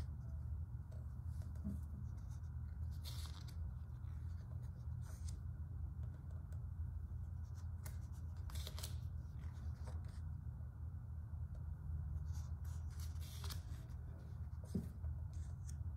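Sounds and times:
book pages turning: 0:00.9 - 0:06.6, 0:07.3 - 0:10.4, 0:12.2 - 0:15.9.

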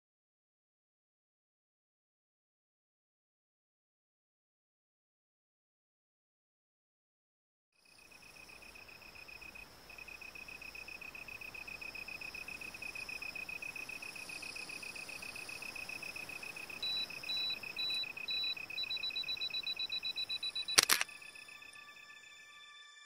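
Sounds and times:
insect chirping rapid pulses: 0:07.8 - 0:21.8
higher-pitched insect chirping: 0:07.8 - 0:22.6
sharp click: 0:20.6 - 0:21.1.

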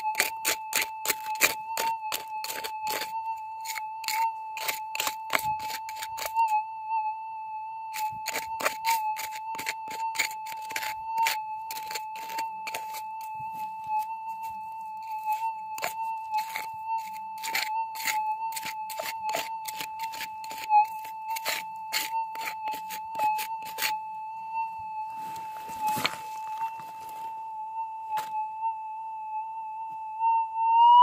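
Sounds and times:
hand pick chopping into gravel: 0:00.0 - 0:06.3, 0:08.2 - 0:13.0
metal detector high electronic tone: 0:00.0 - 0:31.0.

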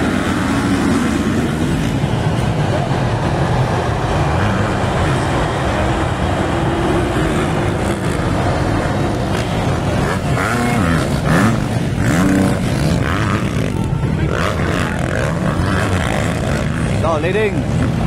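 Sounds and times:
dirt bike engines revving: 0:00.0 - 0:18.0.

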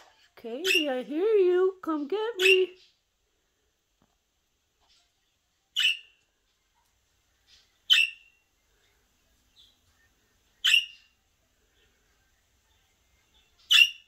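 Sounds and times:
budgerigar calls: 0:07.9 - 0:08.2.

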